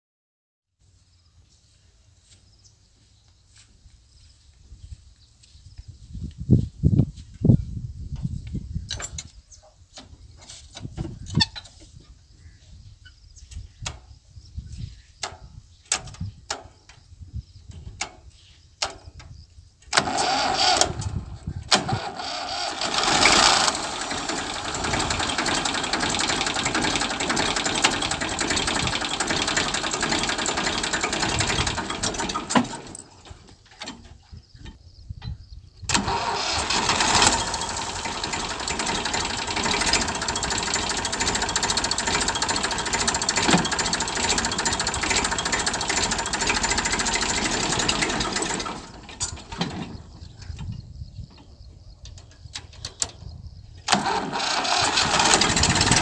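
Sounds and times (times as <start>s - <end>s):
faint starter clicks: 19.9s - 33.3s, 35.9s - 49.7s, 53.8s - 56.0s
tractor engine running: 19.9s - 34.1s, 35.9s - 50.8s, 53.8s - 56.0s.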